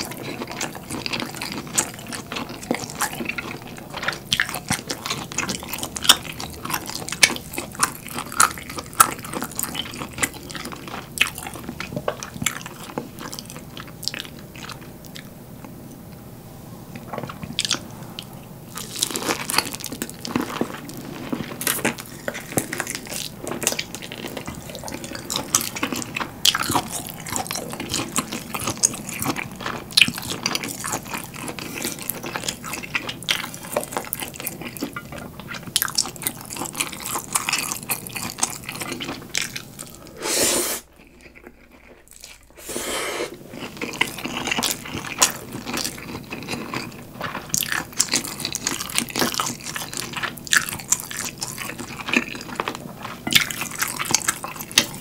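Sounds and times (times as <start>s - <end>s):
close chewing with mouth clicks: 0.0s - 16.2s, 17.0s - 40.2s, 40.8s - 42.7s, 43.3s - 55.0s.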